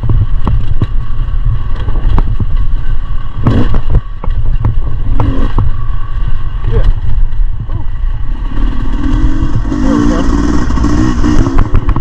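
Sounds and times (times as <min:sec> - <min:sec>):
bike knocks and clatter: 0:00.0 - 0:05.8
dirt bike engine: 0:00.0 - 0:12.0
wind rumble on microphone: 0:00.0 - 0:12.0.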